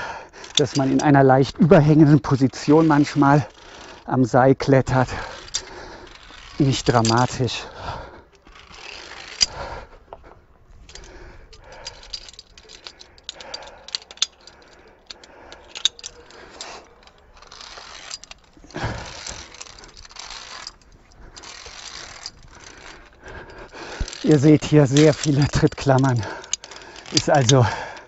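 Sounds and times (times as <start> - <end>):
carabiners clinking on steel cable: 0.0 - 28.0
metal clicks: 0.0 - 28.0
rustling: 0.0 - 28.0.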